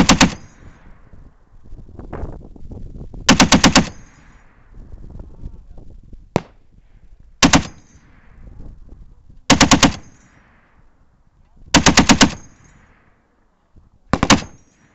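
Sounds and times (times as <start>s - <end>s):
rolling gunfire echo: 0.0s - 1.1s, 3.3s - 4.7s, 6.3s - 6.7s, 7.4s - 8.5s, 9.5s - 11.1s, 11.7s - 13.4s, 14.1s - 14.9s
heavy machine gun bursts: 9.5s - 10.3s, 11.7s - 12.7s, 14.1s - 14.9s.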